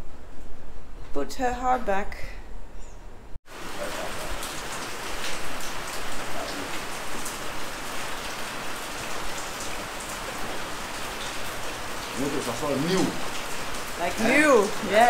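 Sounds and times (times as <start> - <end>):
steady rain falling: 3.5 - 15.0.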